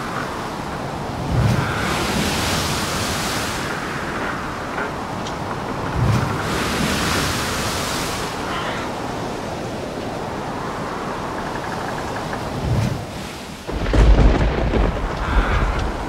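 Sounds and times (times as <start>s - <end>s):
surf rushing: 0.0s - 16.0s
wind: 0.0s - 16.0s.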